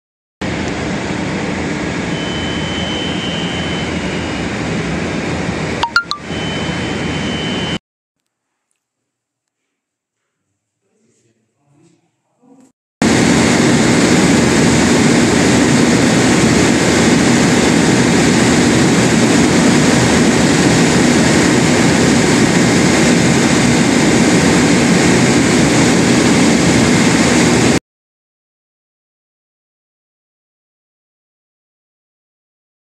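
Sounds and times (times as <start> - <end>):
diesel generator running: 0.4 - 7.8, 13.0 - 27.8.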